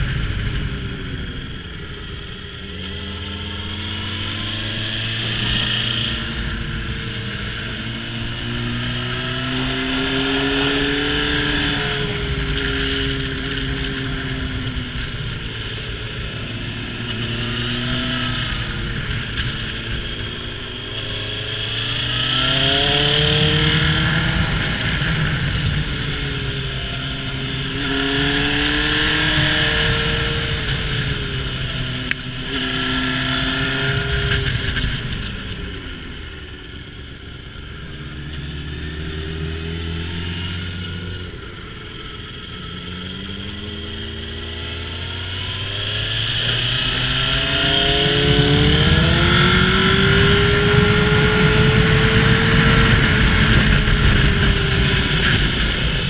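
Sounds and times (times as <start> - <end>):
motorcycle engine revving: 0.0 - 56.0
wind rush: 45.3 - 56.0.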